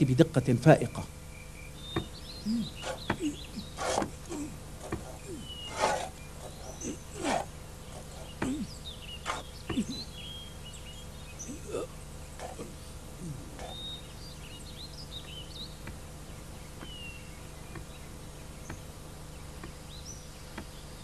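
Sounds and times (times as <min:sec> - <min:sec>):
low falling animal calls: 0:02.0 - 0:10.4, 0:11.3 - 0:14.2.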